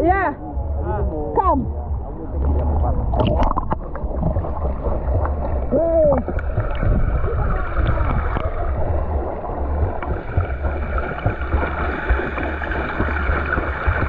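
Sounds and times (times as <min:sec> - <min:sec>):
low underwater rumble: 0:00.0 - 0:14.0
water rushing underwater: 0:01.6 - 0:14.0
swimmer stroking and kicking: 0:02.4 - 0:14.0.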